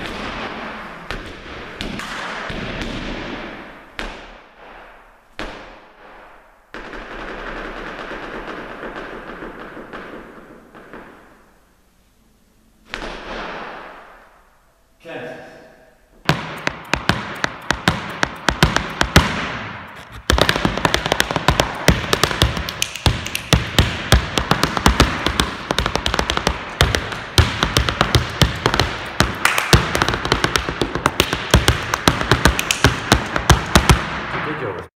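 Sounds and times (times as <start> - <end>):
dance shoes stamping on hard floor: 16.2 - 34.2.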